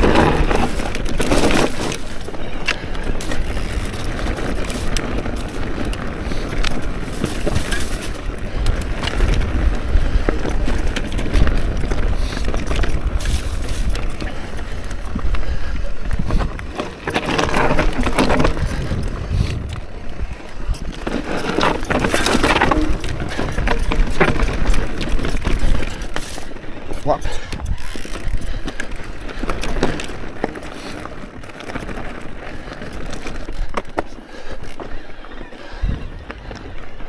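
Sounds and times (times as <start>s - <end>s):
tyres crunching over stone: 0.0s - 15.2s, 16.1s - 27.1s
wind rumble on microphone: 0.0s - 26.2s, 35.7s - 37.0s
bike rattling: 0.0s - 37.0s.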